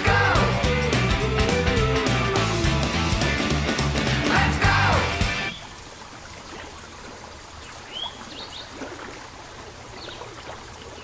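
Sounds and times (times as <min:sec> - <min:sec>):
music: 0:00.0 - 0:05.5
running water trickling: 0:05.1 - 0:11.0.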